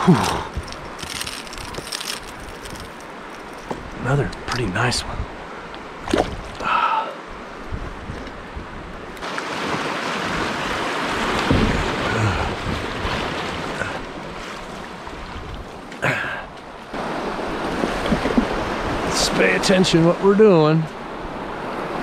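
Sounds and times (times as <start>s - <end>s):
rushing shallow river water: 0.0s - 22.0s
splash in river: 9.2s - 15.0s.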